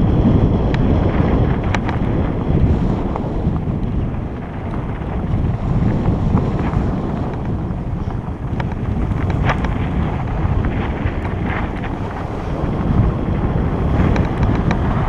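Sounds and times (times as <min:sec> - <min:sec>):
wind rushing over microphone: 0:00.0 - 0:15.0.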